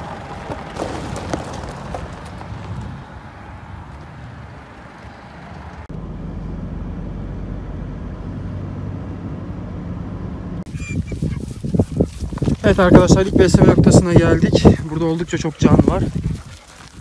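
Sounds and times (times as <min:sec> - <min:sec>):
car cabin road and engine drone: 0:02.0 - 0:10.7.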